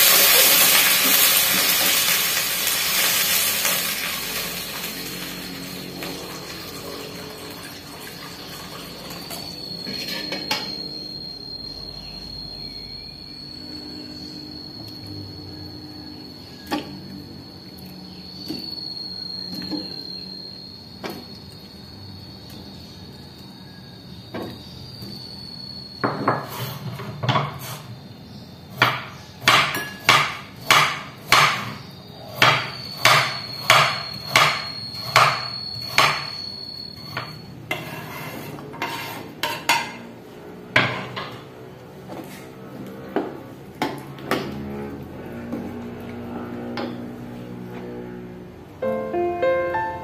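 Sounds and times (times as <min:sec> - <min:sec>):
knife chopping on wooden board: 0:28.8 - 0:31.7.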